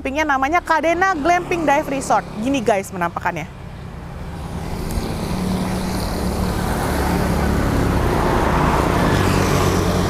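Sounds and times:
road noise: 0.0s - 10.0s
vehicle engine approaching: 1.0s - 10.0s.

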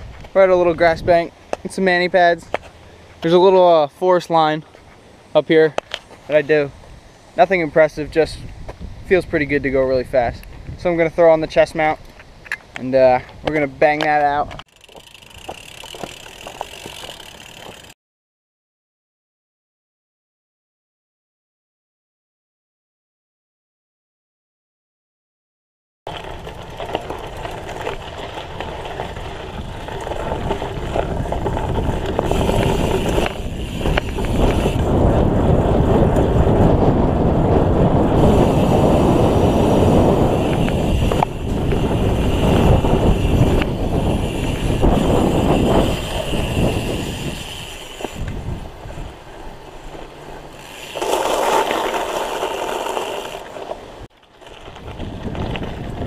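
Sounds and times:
wind rushing over microphone: 6.7s - 12.5s, 26.3s - 49.6s, 53.2s - 56.0s
bike tyres crunching on gravel: 10.4s - 17.9s, 26.1s - 56.0s.

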